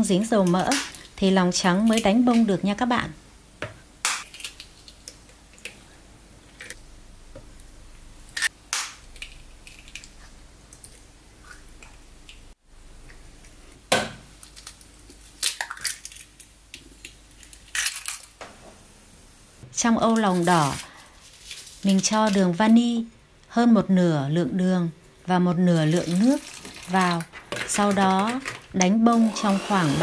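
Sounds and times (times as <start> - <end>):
eggshells cracking and clicking: 4.1 - 5.8, 8.4 - 10.2, 14.4 - 18.4.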